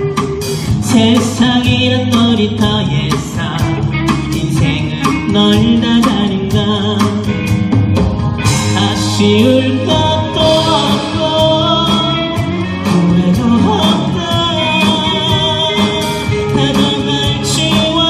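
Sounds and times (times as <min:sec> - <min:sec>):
man singing: 0:00.0 - 0:07.8, 0:08.4 - 0:18.0
acoustic and electric guitars: 0:00.0 - 0:18.0
steady drum beat: 0:00.0 - 0:18.0.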